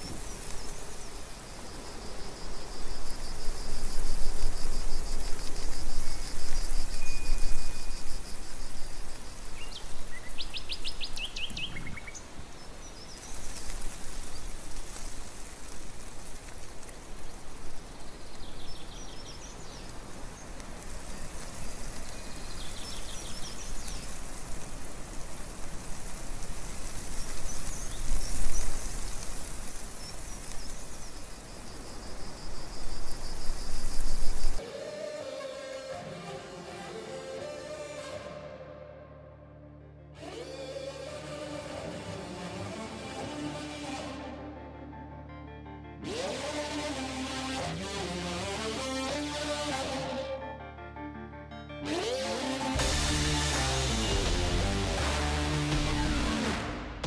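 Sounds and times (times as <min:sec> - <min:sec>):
birds chirping in trills: 0:05.7 - 0:15.0, 0:17.8 - 0:25.4
steady outdoor rushing noise: 0:51.9 - 0:57.0.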